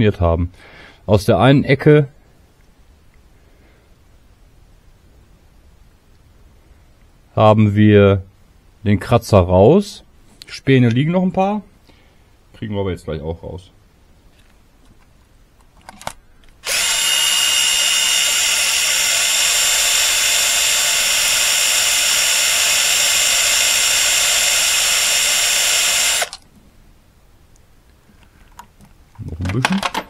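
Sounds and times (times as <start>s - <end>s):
cordless drill spinning: 16.6s - 26.4s.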